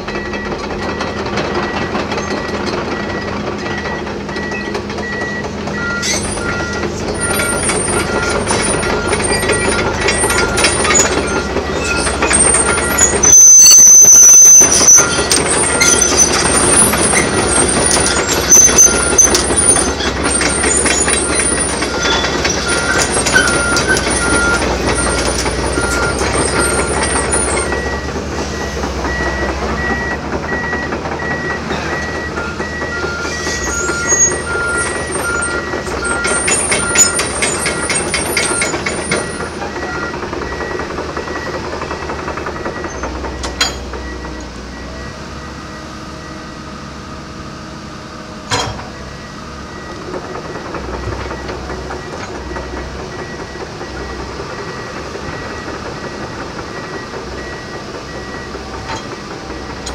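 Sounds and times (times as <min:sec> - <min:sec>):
travel alarm beeping: 0:00.0 - 0:46.6
diesel engine running: 0:00.0 - 0:59.9
tracks clanking and squeaking: 0:00.0 - 0:59.9.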